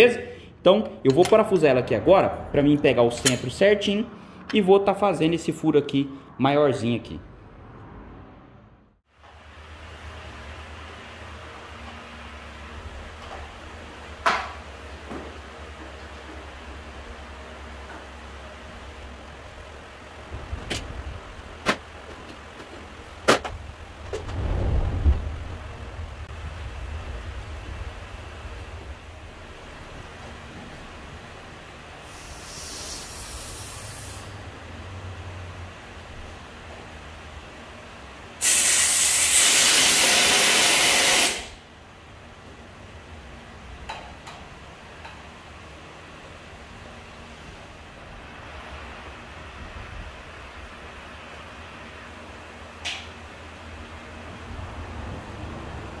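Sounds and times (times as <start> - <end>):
low rumble: 23.6 - 31.4
hissing air burst: 32.0 - 34.4, 38.4 - 41.6.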